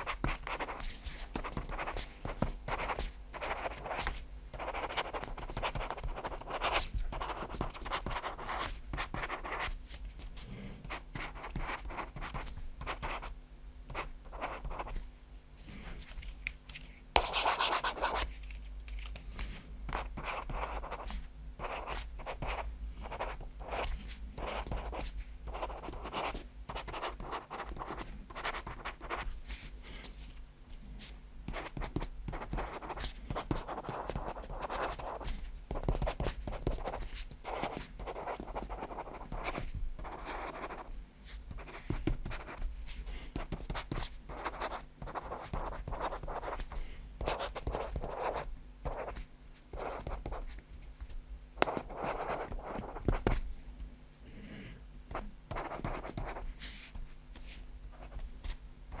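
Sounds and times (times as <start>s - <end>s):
stylus scratching on screen: 43.4s - 53.4s, 55.1s - 59.0s.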